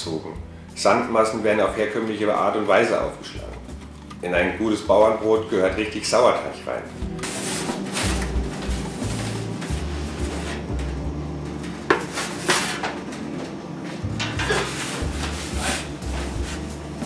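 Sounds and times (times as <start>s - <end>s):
bread peel knocking and scraping: 11.8s - 12.9s.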